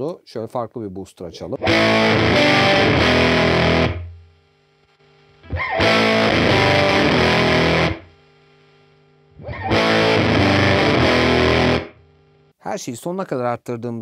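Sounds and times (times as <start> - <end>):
low amp hum: 1.2 - 12.6
fuzzy electric guitar chords: 1.5 - 4.4, 5.4 - 8.6, 9.3 - 12.1.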